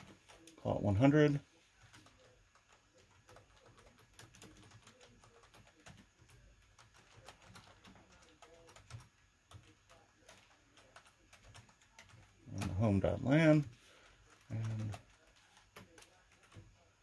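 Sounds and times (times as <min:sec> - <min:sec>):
keyboard typing: 0:00.0 - 0:13.1, 0:14.0 - 0:16.9.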